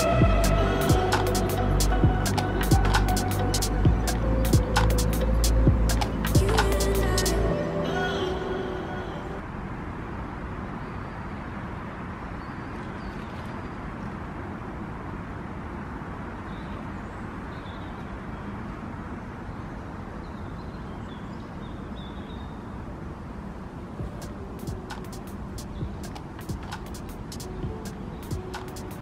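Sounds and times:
outdoor background rumble: 0:00.0 - 0:08.0.

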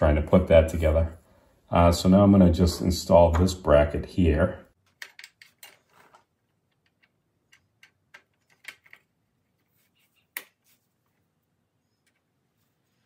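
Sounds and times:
hardware clicks and taps: 0:04.9 - 0:09.1.

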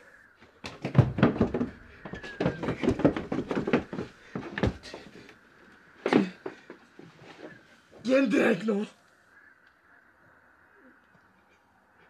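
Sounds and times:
wooden door rattling and knocking: 0:00.7 - 0:05.0.

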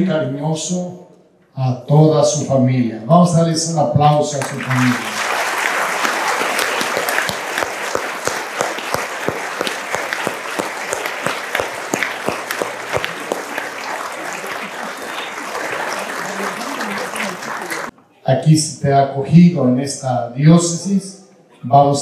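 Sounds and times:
crowd applauding: 0:04.4 - 0:17.9.

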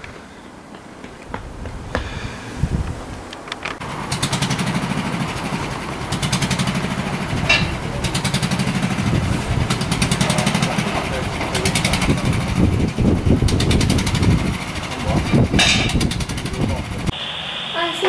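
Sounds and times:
small engine running: 0:03.8 - 0:17.1.

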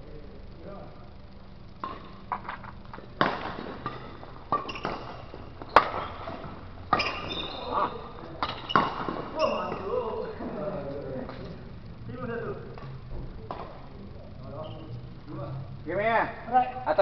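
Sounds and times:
racket hitting shuttlecock: 0:03.2 - 0:07.7, 0:08.4 - 0:09.9
shoes squeaking on court floor: 0:03.8 - 0:09.9, 0:14.5 - 0:15.0.

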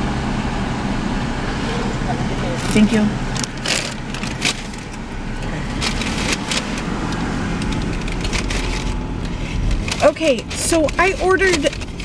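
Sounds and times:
car engine hum inside cabin: 0:00.0 - 0:12.0
paper bag rustling: 0:02.6 - 0:05.0, 0:05.6 - 0:12.0.

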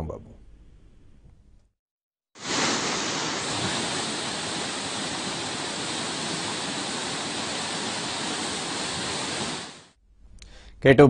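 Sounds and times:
floodwater rushing: 0:02.4 - 0:09.9.

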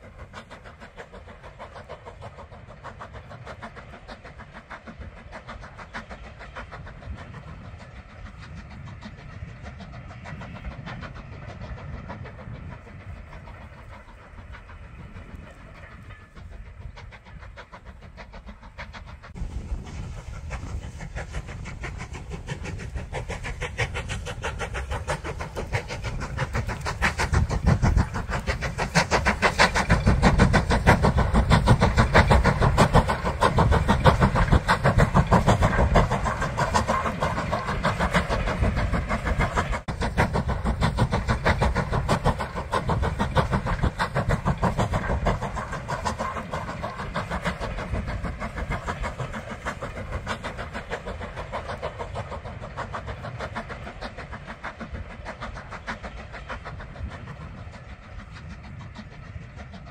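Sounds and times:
steam train running: 0:00.0 - 0:59.9.

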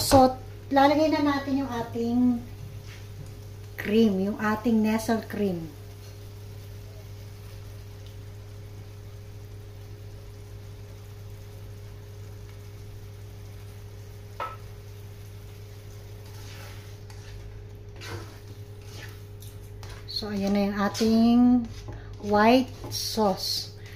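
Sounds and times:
sauce sizzling in a frying pan: 0:00.0 - 0:23.9
spatula stirring sauce: 0:15.5 - 0:23.9.

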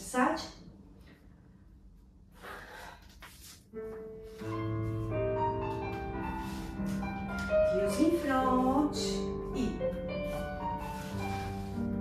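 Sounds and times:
piano music: 0:03.6 - 0:12.0.

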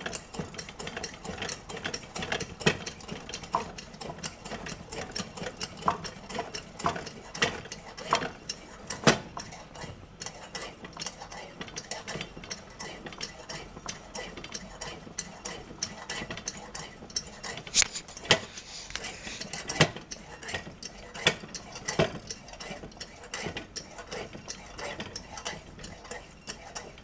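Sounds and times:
pressure lantern burning: 0:17.6 - 0:19.7.

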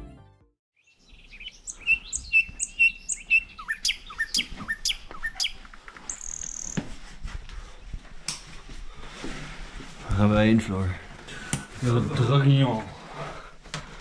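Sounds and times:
birds chirping and singing: 0:00.8 - 0:06.8.

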